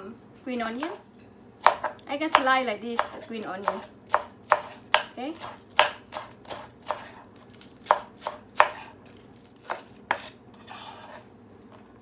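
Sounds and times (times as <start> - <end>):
knife chopping on wooden board: 1.6 - 7.2, 7.8 - 9.0, 9.6 - 11.2.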